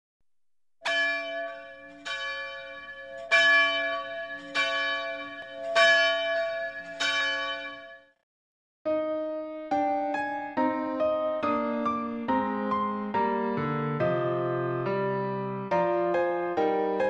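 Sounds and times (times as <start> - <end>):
church bell tolling: 0.8 - 8.2.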